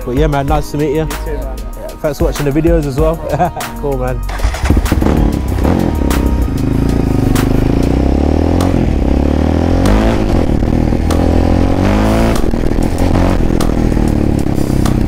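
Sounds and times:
quad bike engine accelerating: 4.3s - 15.0s.

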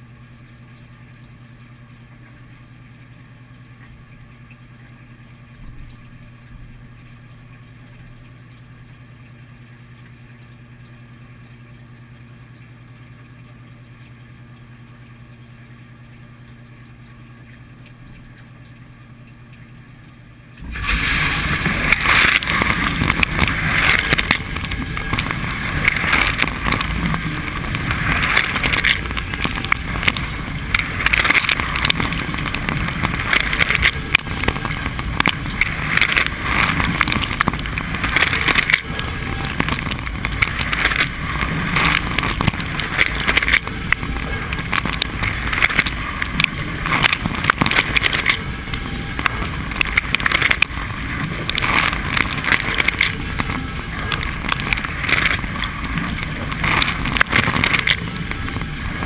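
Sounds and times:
dishwasher motor humming: 0.0s - 59.0s
water spray rushing and splashing: 20.6s - 59.0s.

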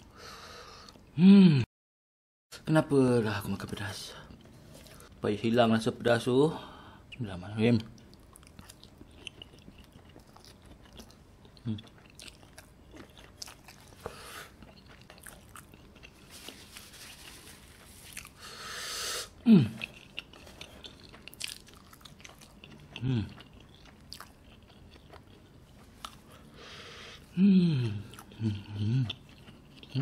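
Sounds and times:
man groaning: 1.2s - 1.7s, 19.4s - 19.8s, 27.4s - 29.1s
wet chewing: 7.9s - 18.5s, 19.7s - 30.0s
long breath: 18.4s - 19.3s.

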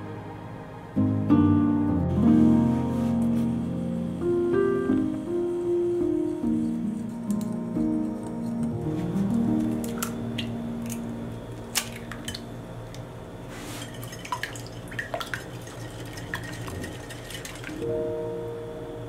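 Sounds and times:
soft music: 0.0s - 12.6s, 17.8s - 19.0s
eggs cracked into glass bowl: 11.7s - 12.4s.

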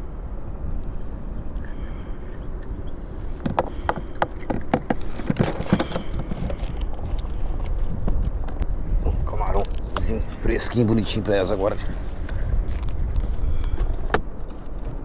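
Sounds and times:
wind: 0.0s - 15.0s
fishing line clicks and rustles: 1.5s - 8.7s.

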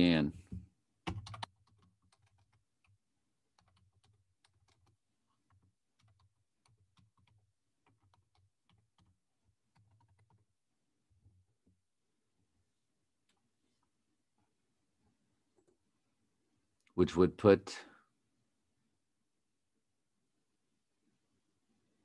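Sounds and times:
faint typing on keyboard: 0.5s - 10.6s.

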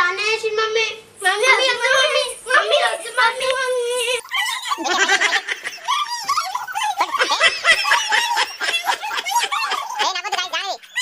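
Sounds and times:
excited talk: 0.0s - 11.0s
high-pitched voices laughing: 4.0s - 11.0s.

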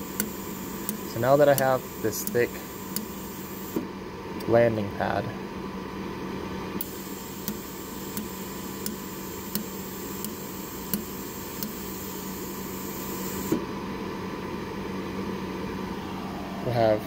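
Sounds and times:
laser welder clicks: 0.0s - 3.8s, 6.8s - 13.6s.

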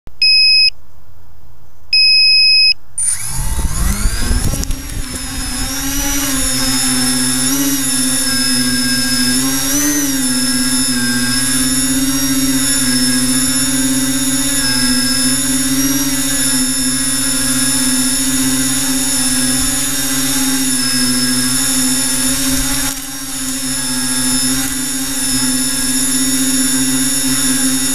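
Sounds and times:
loud electronic beeps: 0.2s - 0.7s, 2.0s - 3.3s
drone motors whining: 3.0s - 27.9s.

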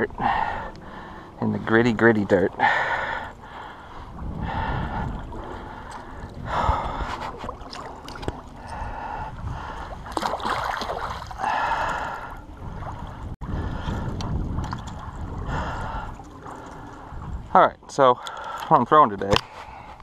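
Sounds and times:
water splashing and sloshing: 0.0s - 20.0s
heavy breathing: 0.1s - 1.4s, 2.5s - 7.6s, 8.5s - 10.1s, 11.4s - 12.4s, 15.4s - 17.2s.

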